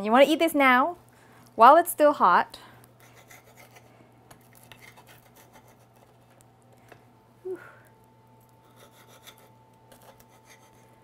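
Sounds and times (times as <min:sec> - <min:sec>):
knife scraping pizza crust: 0:03.0 - 0:06.4, 0:08.6 - 0:11.0.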